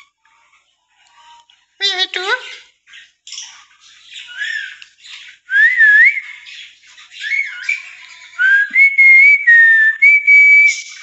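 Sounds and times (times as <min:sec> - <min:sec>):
lorikeets chattering: 0:01.9 - 0:08.5
person whistling: 0:08.4 - 0:10.8.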